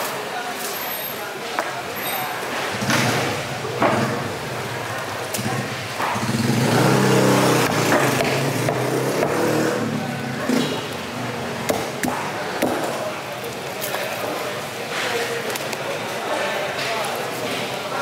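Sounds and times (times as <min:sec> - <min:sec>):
vehicle engine passing by: 0:05.4 - 0:10.8.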